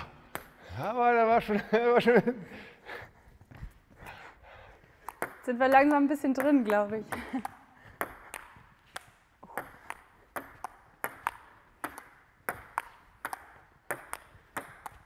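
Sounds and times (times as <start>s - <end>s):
table tennis ball hitting paddles: 4.9s - 15.0s
table tennis ball bouncing on table: 5.0s - 15.0s.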